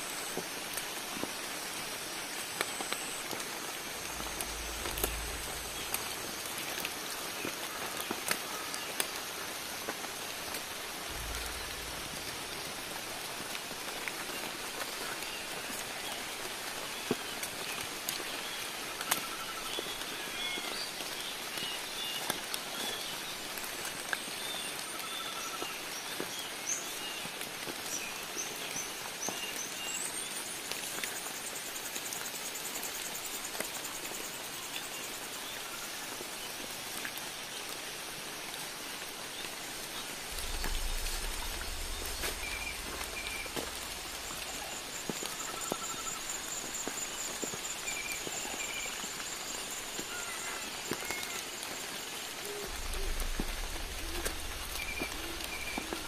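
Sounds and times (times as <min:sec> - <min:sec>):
rain on foliage: 0:00.0 - 0:56.0
sharp water drips: 0:00.1 - 0:25.1, 0:36.0 - 0:56.0
small birds chirping: 0:39.4 - 0:56.0.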